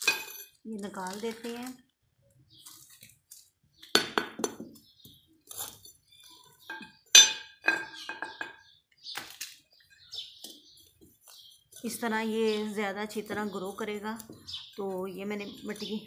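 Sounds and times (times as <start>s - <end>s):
metal trowel scraping clay pot: 5.4s - 8.1s.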